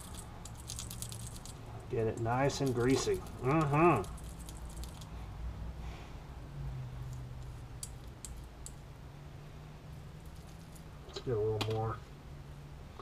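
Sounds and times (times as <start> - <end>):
bearing clicking and squishing in grease: 0.0 - 5.2, 7.0 - 8.9, 10.1 - 11.8
low steady hum: 0.0 - 13.0.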